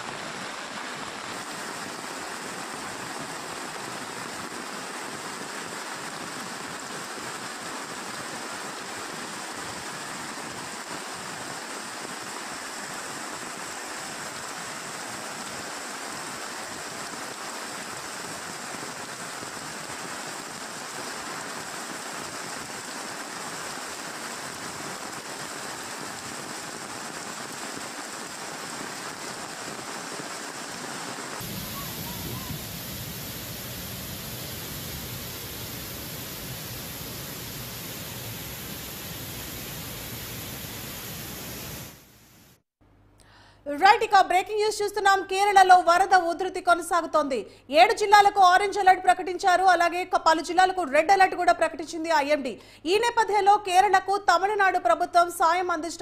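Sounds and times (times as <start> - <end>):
rushing floodwater: 0.0 - 41.9
roaring muddy torrent: 0.0 - 42.0
heavy rain: 0.0 - 42.4.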